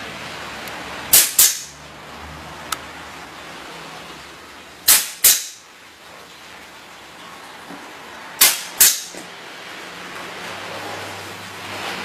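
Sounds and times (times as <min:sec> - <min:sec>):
nail gun snaps with hiss: 0:01.1 - 0:01.7, 0:04.9 - 0:05.6, 0:08.4 - 0:09.2.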